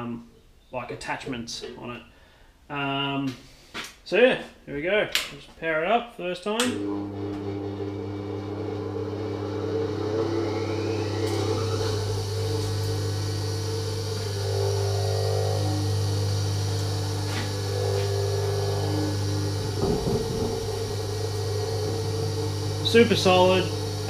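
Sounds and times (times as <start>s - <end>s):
bench grinder motor humming: 6.7s - 24.0s.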